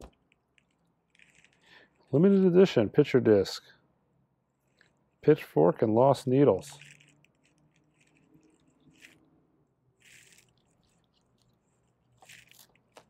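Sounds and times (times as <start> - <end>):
plastic sleeve crinkling: 10.0 - 13.0.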